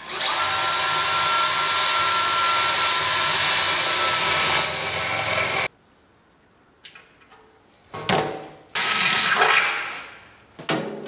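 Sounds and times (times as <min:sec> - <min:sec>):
cordless drill whining through steel: 0:00.0 - 0:05.7.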